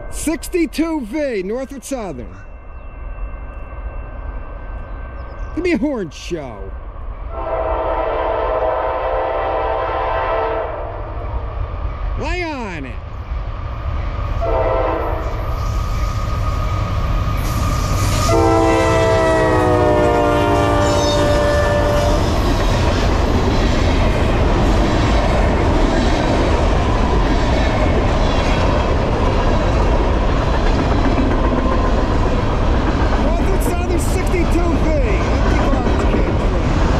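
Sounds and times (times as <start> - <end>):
train cars rumbling on rails: 0.0 - 36.9
locomotive air horn: 7.3 - 11.0, 14.4 - 15.4, 18.2 - 22.2.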